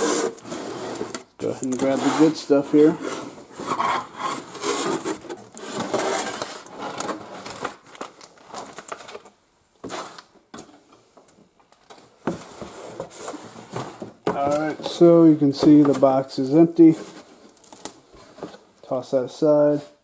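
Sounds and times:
cardboard rubbing and scraping: 0.0s - 7.4s.

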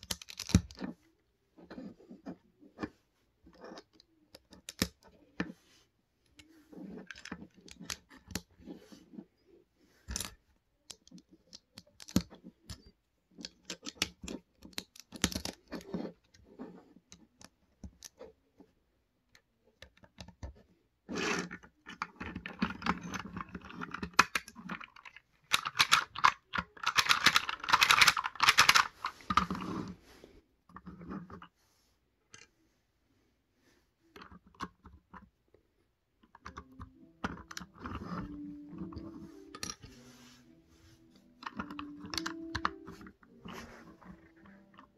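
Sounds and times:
plastic bricks clicking and rattling: 0.0s - 1.0s, 3.5s - 5.4s, 10.0s - 18.3s, 19.4s - 29.9s, 36.2s - 39.9s, 41.4s - 44.9s.

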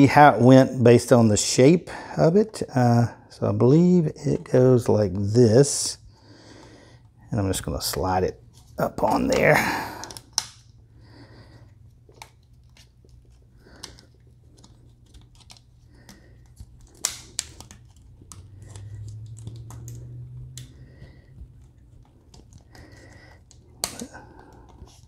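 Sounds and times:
low steady hum: 0.0s - 25.0s
rubber gasket clicking and rubbing: 12.1s - 20.0s.

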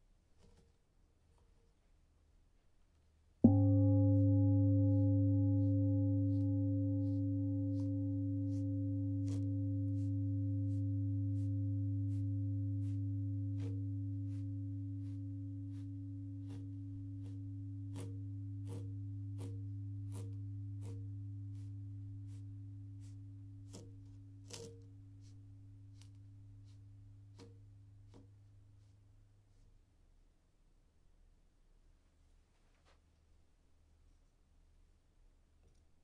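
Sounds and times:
low humming tone: 3.4s - 29.7s.

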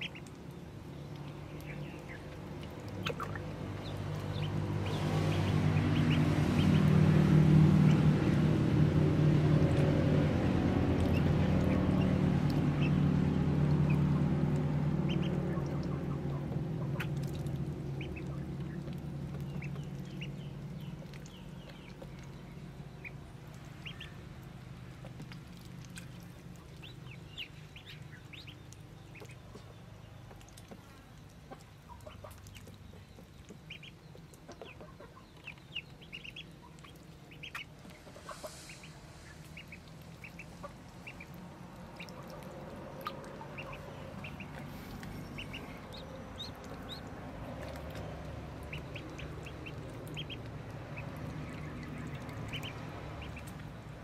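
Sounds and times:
ducklings peeping: 0.0s - 54.0s
low drone: 37.8s - 54.0s.

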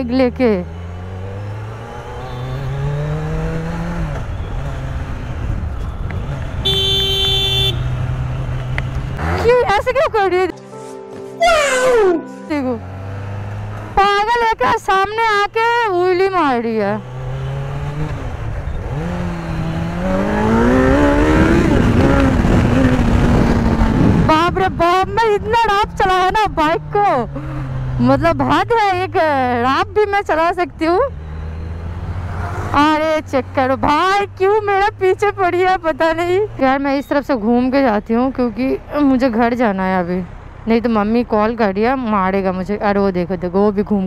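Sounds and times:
motorcycle engine accelerating: 0.0s - 10.4s, 12.6s - 36.9s
vehicle horn: 5.9s - 8.0s.

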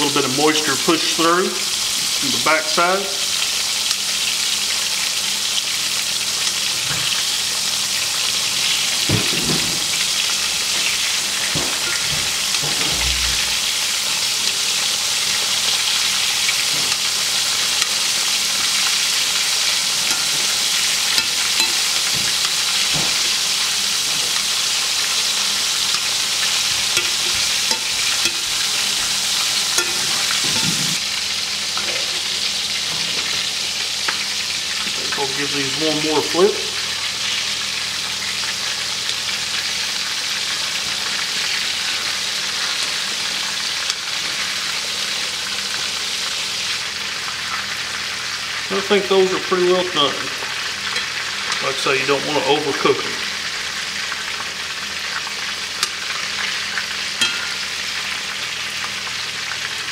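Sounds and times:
meat sizzling in oil: 0.0s - 59.9s
metal tongs knocking: 20.0s - 20.6s, 21.2s - 23.1s, 26.9s - 28.7s, 29.8s - 30.8s, 57.2s - 57.5s.

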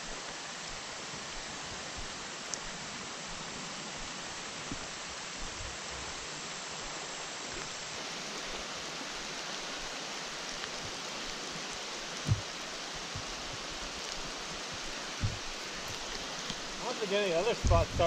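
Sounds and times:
creek running: 0.0s - 18.0s
rain falling on water: 0.0s - 18.0s
short thump: 12.3s - 12.5s.

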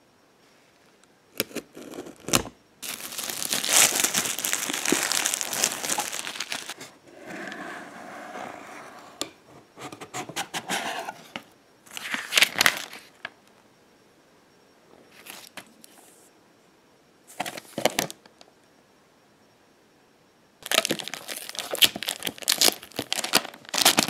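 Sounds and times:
plastic shrink-wrap crackling: 1.9s - 6.8s, 20.6s - 24.0s
paper rustling: 2.8s - 6.9s.

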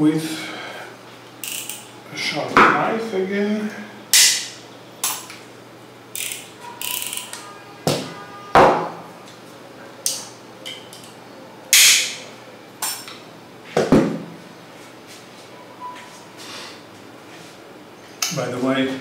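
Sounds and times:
tools clicking on a table: 1.4s - 1.8s, 6.2s - 7.4s.

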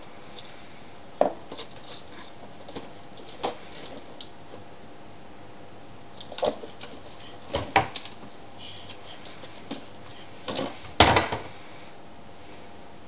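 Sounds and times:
cupboard door knocking and rattling: 10.5s - 11.5s.

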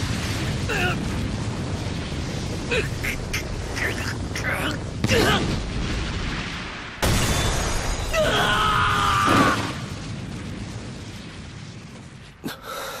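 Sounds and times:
cartoon crash: 7.0s - 9.9s.

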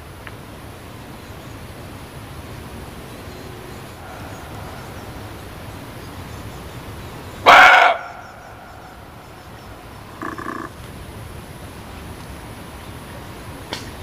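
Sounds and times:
background hiss: 0.0s - 14.0s
deer barking: 7.4s - 8.9s, 10.1s - 10.7s.

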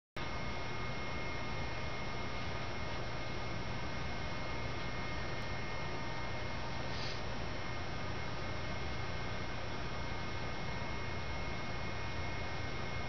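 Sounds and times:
faint high whine: 0.2s - 13.0s
low electrical hum: 0.2s - 13.0s
even hiss: 6.8s - 7.3s.

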